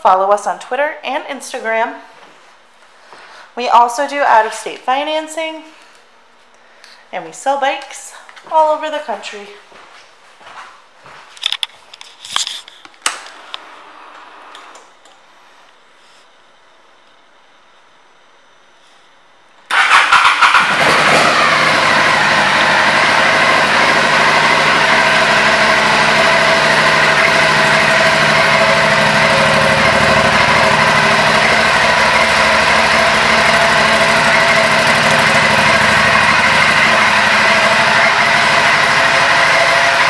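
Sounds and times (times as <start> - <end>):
motorcycle engine starting and idling: 19.7 - 40.0.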